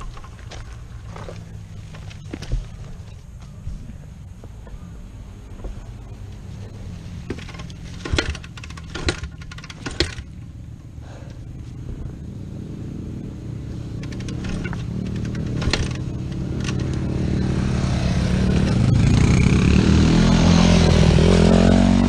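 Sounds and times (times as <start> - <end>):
dirt bike engine running: 6.7 - 22.0
sharp knocks: 7.3 - 10.3.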